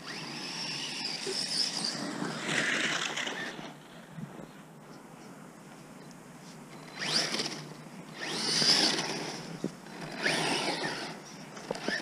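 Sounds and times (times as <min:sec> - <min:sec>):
electric motor whine: 0:00.0 - 0:03.8, 0:06.8 - 0:12.0
wheels churning snow: 0:00.0 - 0:04.0.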